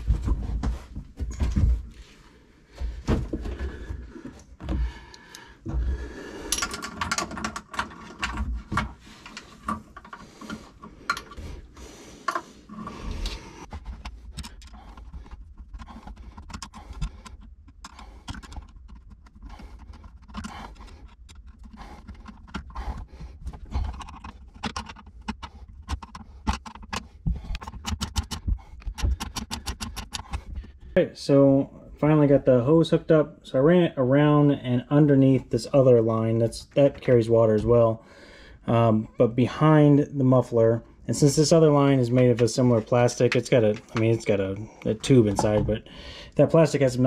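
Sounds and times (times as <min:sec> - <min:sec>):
plastic hose and tool knocking: 0:05.6 - 0:11.4, 0:12.2 - 0:31.0, 0:43.3 - 0:44.2, 0:45.2 - 0:45.8.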